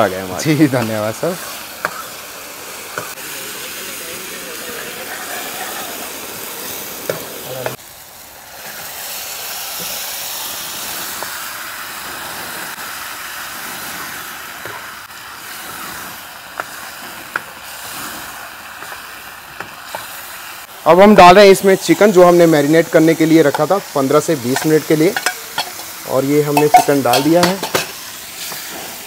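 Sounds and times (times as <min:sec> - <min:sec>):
sauce sizzling in a pan: 0:00.0 - 0:29.0
metal ladle clinking against pan: 0:24.6 - 0:25.9, 0:26.6 - 0:28.0.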